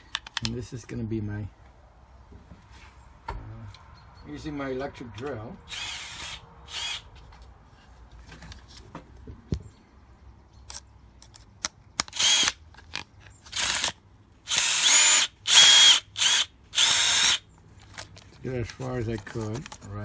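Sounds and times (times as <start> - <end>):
electric drill driving screw: 5.7 - 7.0, 12.1 - 12.6, 13.5 - 17.4.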